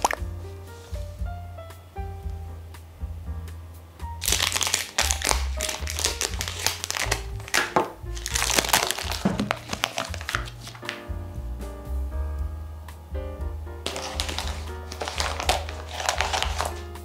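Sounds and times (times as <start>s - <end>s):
plastic wrapping crinkling: 0.0s - 0.2s, 4.2s - 11.0s, 13.9s - 16.9s
background music: 0.0s - 17.0s.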